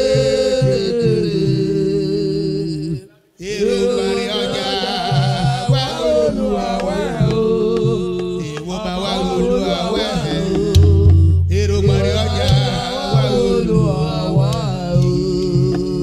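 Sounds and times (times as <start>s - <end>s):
man singing a chant: 0.0s - 16.0s
musical backing: 4.3s - 16.0s.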